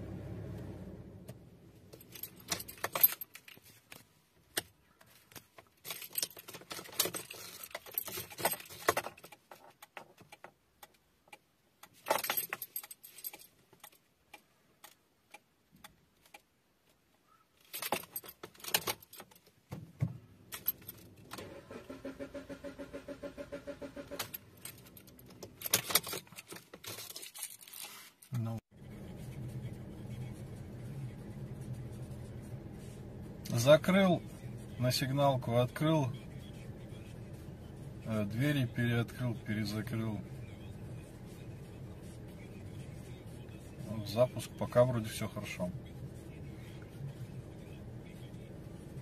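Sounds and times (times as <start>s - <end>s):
keys jangling: 1.9s - 3.8s, 5.8s - 9.4s, 12.0s - 14.1s, 17.6s - 19.6s, 20.5s - 21.2s, 24.2s - 28.0s.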